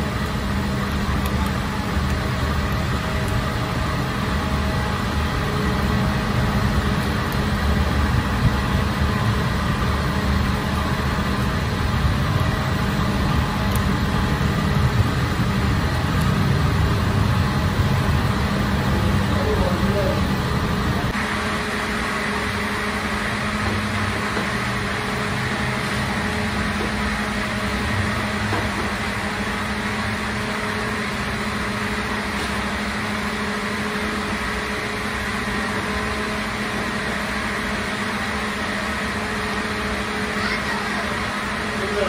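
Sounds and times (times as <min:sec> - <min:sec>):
machinery low drone: 0:00.0 - 0:42.0.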